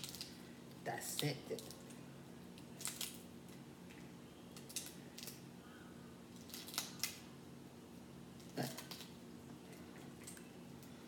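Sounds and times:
crab shell cracking: 0.0s - 0.4s, 2.6s - 3.3s, 4.6s - 5.4s, 6.3s - 7.3s.

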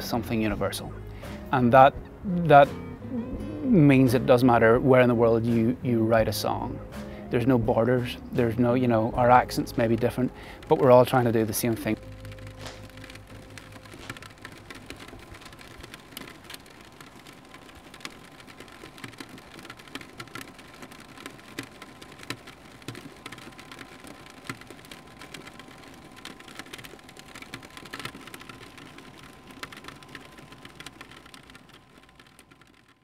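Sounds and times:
raindrop taps: 9.6s - 33.0s
rain falling: 10.6s - 32.7s.

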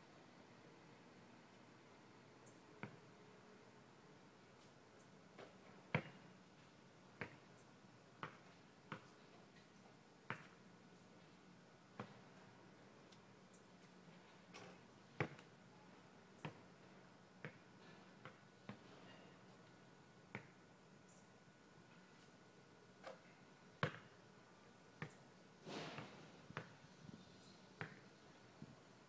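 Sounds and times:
basketball bouncing on court: 23.8s - 24.1s.

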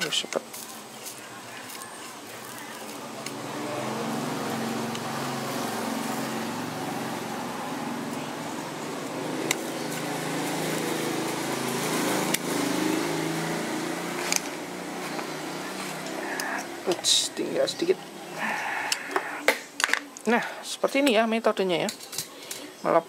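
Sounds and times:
hot-air gun blowing: 15.9s - 17.0s, 18.4s - 19.6s.

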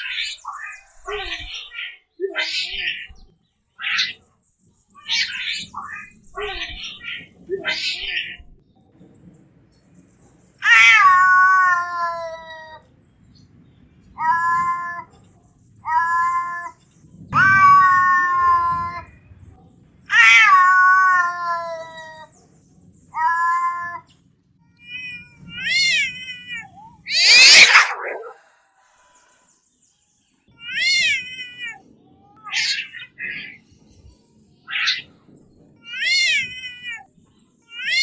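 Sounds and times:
cat meowing: 0.0s - 4.2s, 5.0s - 8.6s, 10.6s - 12.8s, 14.2s - 15.2s, 15.8s - 19.2s, 20.1s - 22.3s, 23.1s - 24.1s, 24.7s - 28.4s, 30.5s - 33.6s, 34.7s - 35.1s, 35.8s - 37.1s, 37.7s - 38.0s
cat harsh rasping cry: 5.0s - 8.6s, 10.6s - 12.8s, 14.2s - 15.1s, 15.8s - 16.8s, 17.4s - 19.2s, 20.1s - 22.3s, 23.1s - 24.1s, 24.8s - 28.4s, 32.4s - 33.6s, 34.7s - 35.0s, 35.8s - 37.1s.

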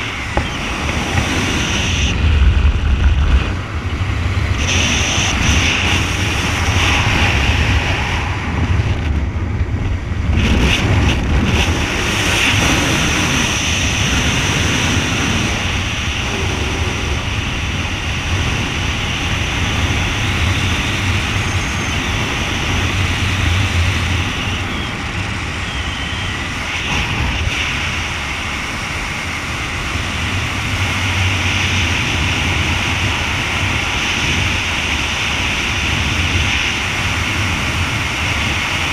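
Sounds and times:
wind noise on microphone: 0.0s - 38.9s.

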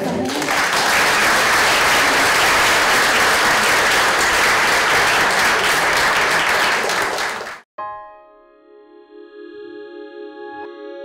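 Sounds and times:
audience applauding: 0.0s - 7.7s.

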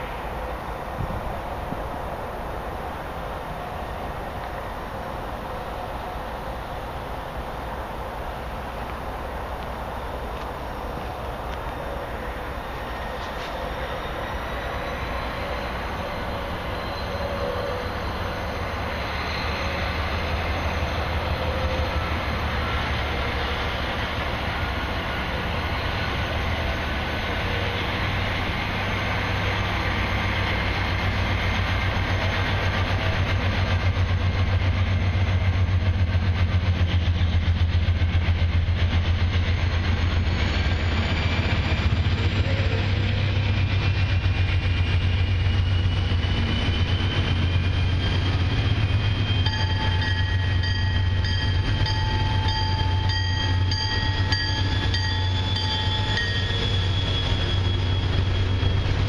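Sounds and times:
diesel locomotive rumble: 0.0s - 59.0s
repeating high ringing: 49.3s - 58.0s.

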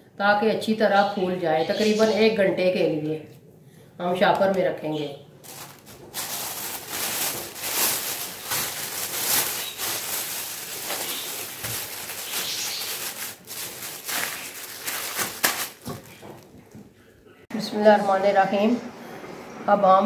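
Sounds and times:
plastic bag rustling and crinkling: 5.4s - 16.8s.

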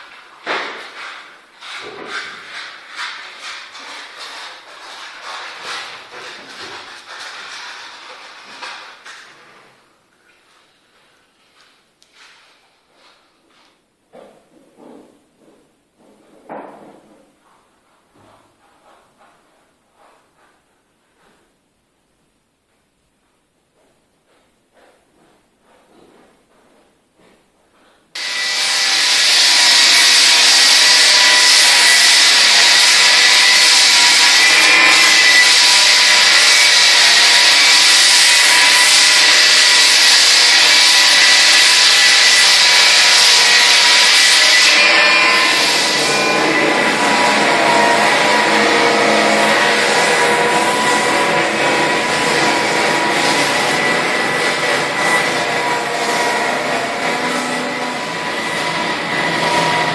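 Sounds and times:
floor sander grinding wood: 0.0s - 9.5s, 24.3s - 59.9s.

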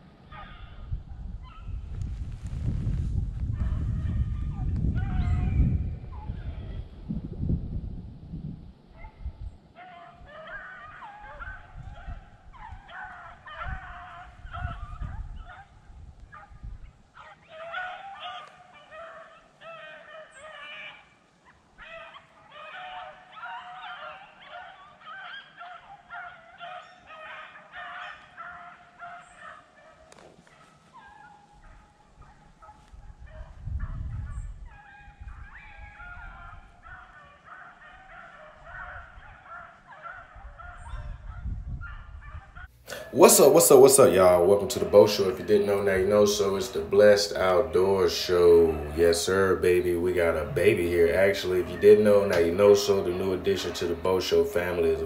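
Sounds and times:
pack of dogs baying: 0.2s - 1.7s, 3.6s - 6.8s, 9.0s - 55.0s
low rumbles on microphone: 0.6s - 9.7s, 32.9s - 36.7s, 40.4s - 42.6s.

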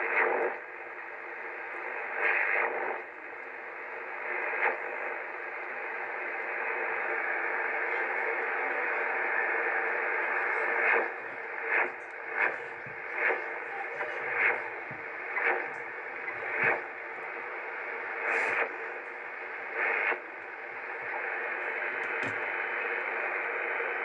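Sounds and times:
radio band noise: 0.0s - 24.0s
radio signal squawks: 8.6s - 20.2s.

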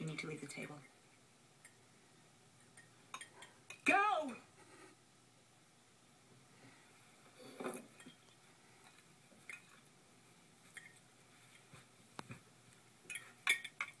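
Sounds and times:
soft rustle: 6.5s - 13.5s
faint clicks and clinks: 7.5s - 9.9s, 10.6s - 11.7s, 13.0s - 14.0s.

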